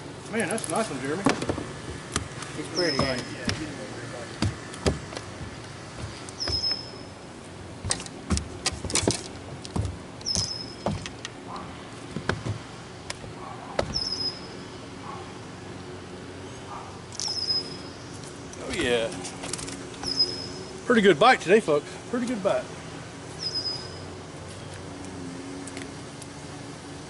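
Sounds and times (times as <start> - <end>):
knocks and thumps on boat deck: 2.9 - 3.7, 4.4 - 6.8, 7.8 - 11.1, 12.1 - 12.7, 13.7 - 14.0.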